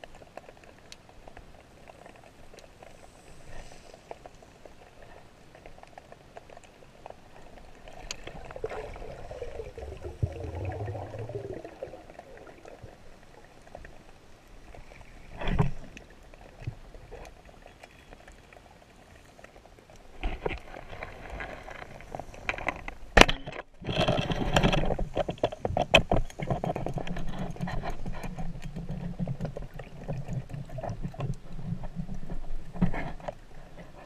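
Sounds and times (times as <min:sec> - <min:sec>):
faint underwater clicks and crackles: 0:00.0 - 0:34.0.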